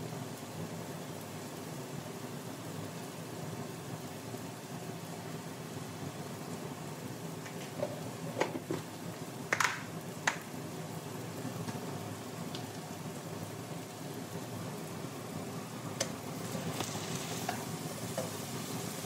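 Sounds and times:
vegetables sizzling in oil: 0.0s - 19.0s.

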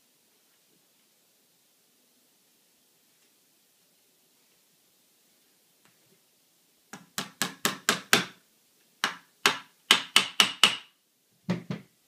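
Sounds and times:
small hammer tapping a pin: 9.0s - 10.9s.

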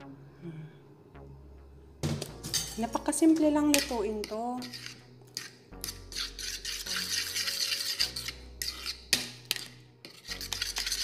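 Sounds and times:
utensil scraping batter in bowl: 3.7s - 11.0s.

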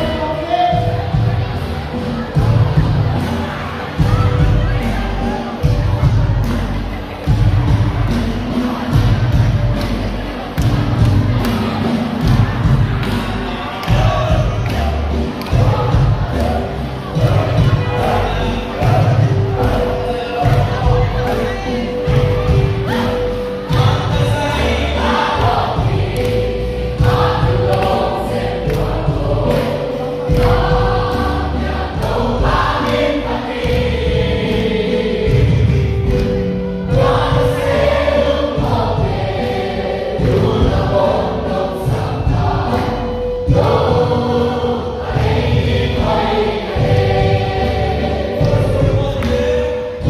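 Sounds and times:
instrumental backing: 0.0s - 50.0s
sustained bass notes: 0.0s - 50.0s
group singing worship song: 7.2s - 50.0s.

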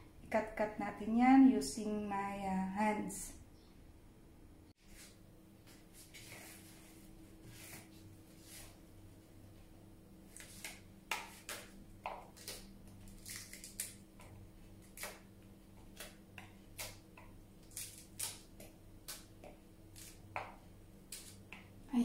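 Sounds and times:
lettuce leaves tearing: 10.3s - 15.3s, 17.6s - 19.3s, 19.9s - 20.2s, 21.0s - 21.4s.

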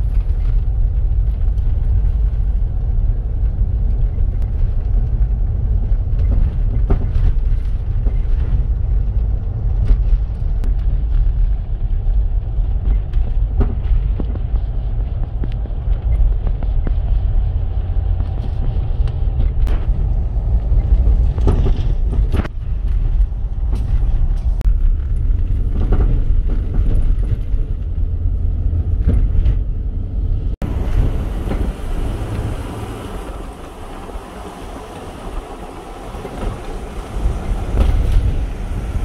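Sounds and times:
car tyres and drivetrain rumble: 0.0s - 39.0s
wind rushing past microphone: 0.0s - 39.0s.

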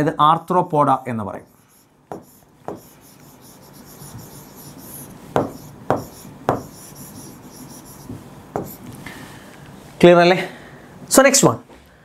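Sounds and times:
pen scratching on a board: 1.7s - 8.9s
pen tip tapping: 2.1s - 2.9s.

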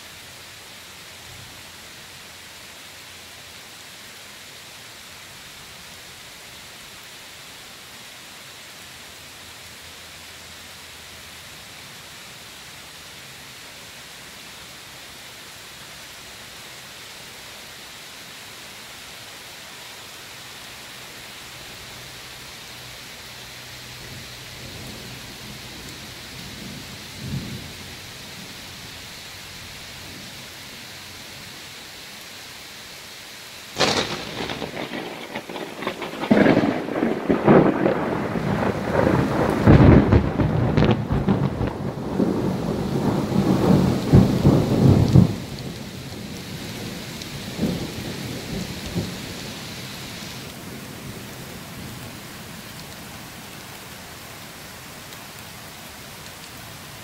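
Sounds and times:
rain hissing: 0.0s - 57.0s
thunder rolling: 33.8s - 49.2s.

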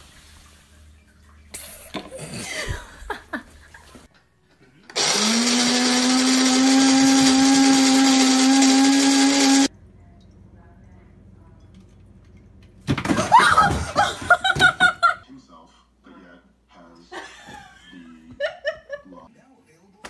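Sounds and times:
small electric motor whining: 5.0s - 9.7s.

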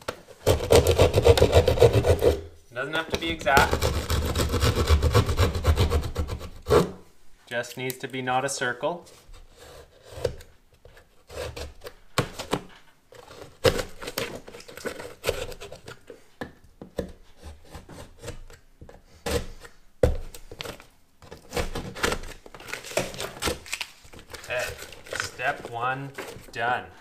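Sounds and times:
utility knife cutting drywall: 0.4s - 2.5s, 3.1s - 7.0s, 11.2s - 16.0s, 17.0s - 23.6s.

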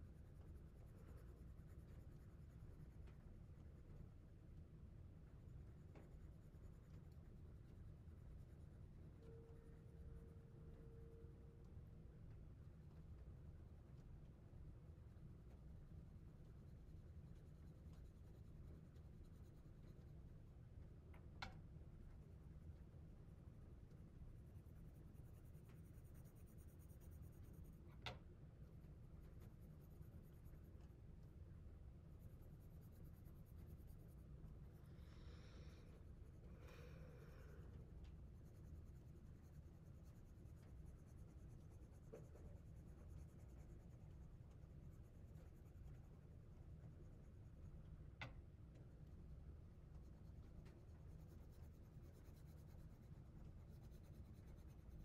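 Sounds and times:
low steady hum: 0.0s - 55.0s.

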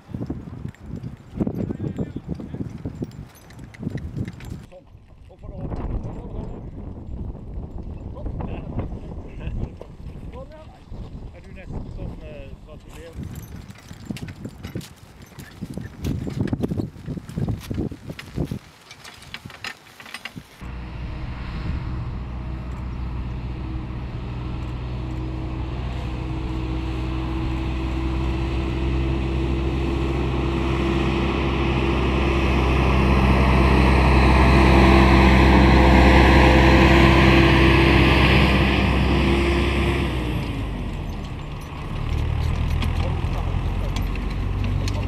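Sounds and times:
vehicle engine passing by: 20.6s - 45.0s.

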